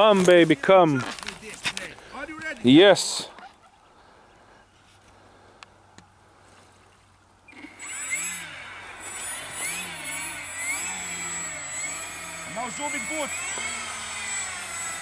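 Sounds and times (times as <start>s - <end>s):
electric motors whining: 7.5s - 15.0s.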